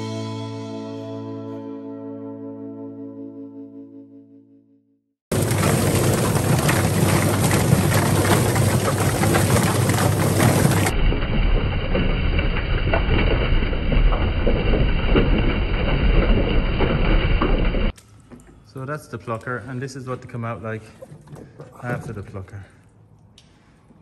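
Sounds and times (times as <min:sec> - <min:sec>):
chicken plucker rattling clatter: 0:05.3 - 0:11.0.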